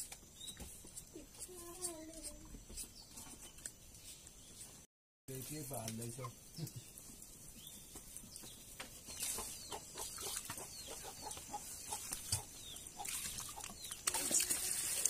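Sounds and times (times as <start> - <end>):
chickens clucking: 8.9 - 14.4.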